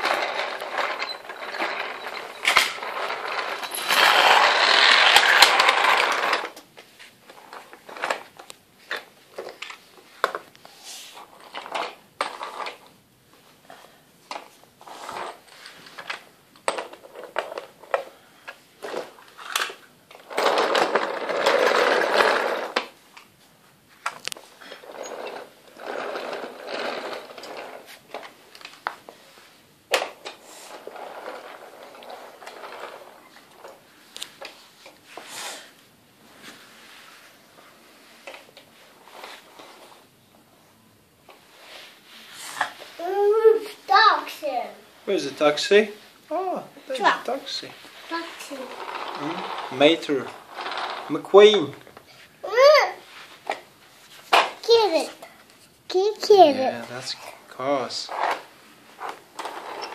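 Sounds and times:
toy cars clicking and clattering: 0.0 - 6.7, 7.3 - 10.5, 11.2 - 12.9, 14.3 - 18.1, 18.8 - 23.0, 24.0 - 29.0, 29.9 - 35.0, 47.0 - 51.9, 57.9 - 59.9
toy cars rolling on track: 0.0 - 6.7, 7.3 - 10.4, 11.2 - 12.9, 14.3 - 18.1, 18.8 - 23.0, 24.0 - 29.0, 29.9 - 35.6, 47.0 - 53.6, 57.8 - 59.9.

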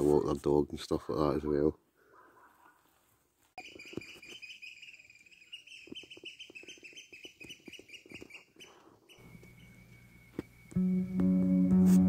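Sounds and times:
birds chirping: 3.6 - 11.4.

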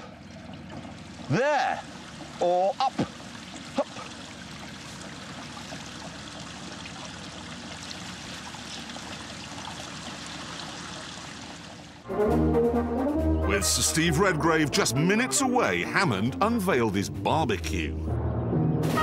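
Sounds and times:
water feature splashing: 0.0 - 12.1.

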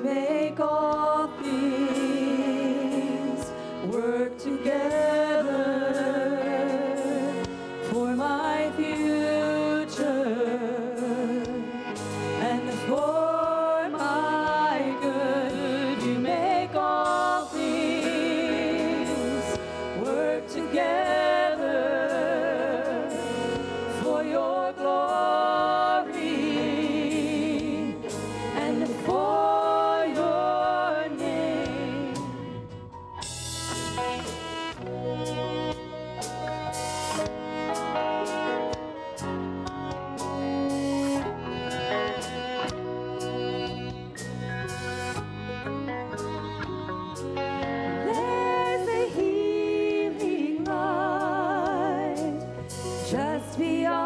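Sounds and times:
woman singing with vibrato: 0.0 - 11.7, 12.4 - 32.5, 48.0 - 54.0
full band playing: 0.0 - 54.0
backing singers: 12.4 - 32.7.

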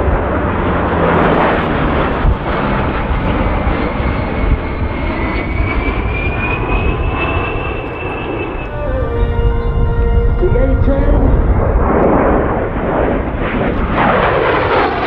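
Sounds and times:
jet engine rumble overhead: 0.0 - 15.0
high whine rising in pitch: 4.2 - 13.4.

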